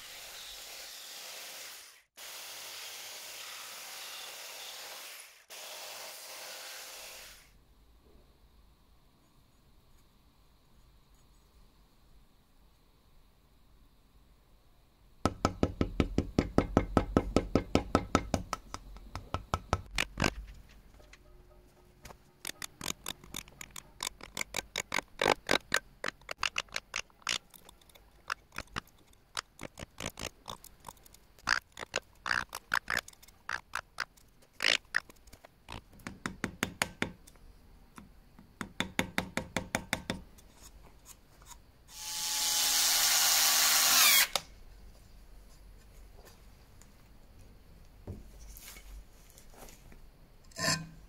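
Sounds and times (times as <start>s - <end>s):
carving tool cutting wood: 0.0s - 7.4s, 22.4s - 35.0s, 41.9s - 44.4s
small electric tool whining: 41.9s - 44.5s.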